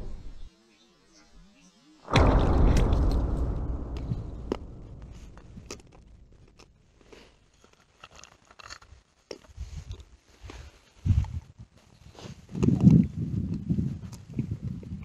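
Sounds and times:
boom: 2.1 - 7.1.

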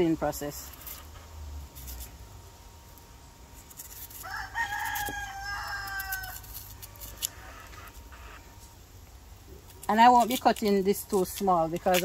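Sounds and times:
knife peeling clicks and scrapes: 0.6 - 1.1, 3.6 - 8.1, 9.6 - 12.0
rooster crowing: 4.2 - 8.4.

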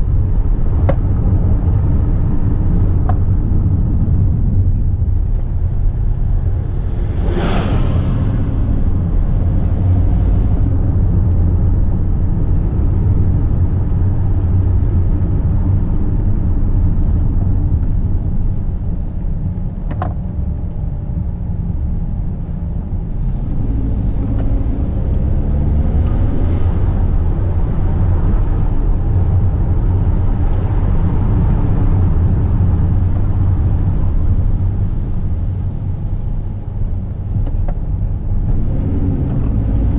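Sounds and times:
car engine and road rumble: 0.0 - 39.9
truck passing whoosh: 3.6 - 13.8.

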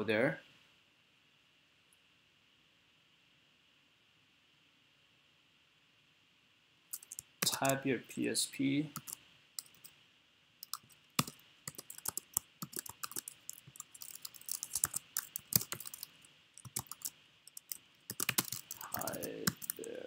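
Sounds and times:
computer keyboard typing: 6.9 - 7.8, 8.9 - 9.9, 10.6 - 20.0.

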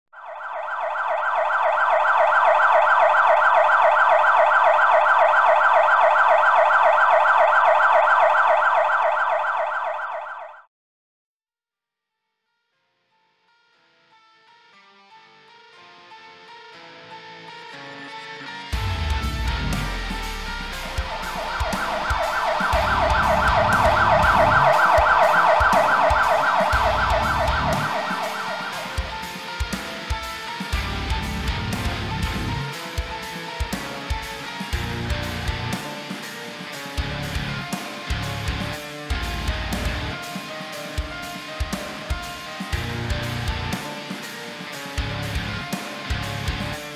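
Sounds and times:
siren yelping: 0.2 - 10.7, 19.2 - 30.0
background music with drum beat: 18.8 - 46.9.

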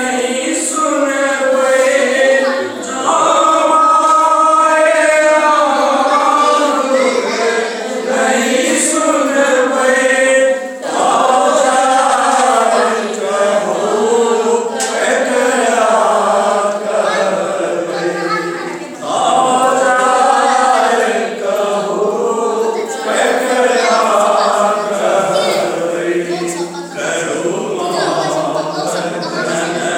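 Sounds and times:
group singing in unison: 0.0 - 29.9.

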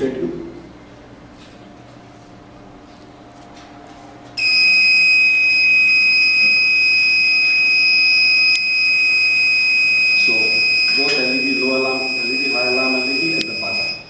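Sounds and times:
high-pitched alarm buzzer: 4.4 - 14.0.

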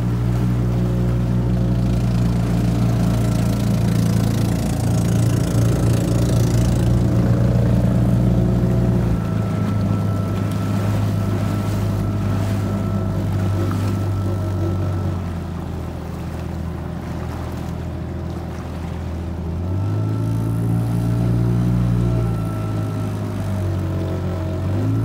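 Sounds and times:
outboard motor running: 0.0 - 25.0
water rushing along hull: 0.0 - 25.0.

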